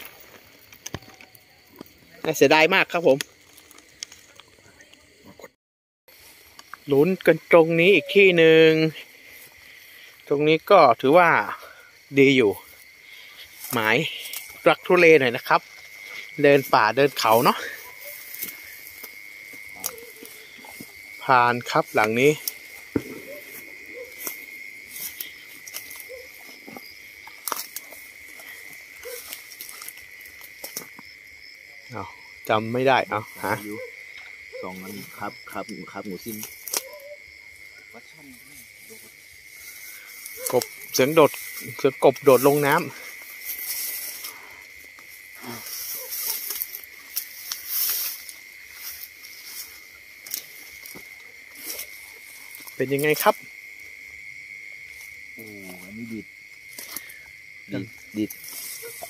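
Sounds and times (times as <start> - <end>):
crickets trilling: 0.0 - 59.0
frogs calling: 0.0 - 59.0
high insect tone: 0.0 - 59.0
footsteps through tall grass: 8.2 - 10.2, 12.5 - 31.1, 36.3 - 52.8, 58.0 - 59.0.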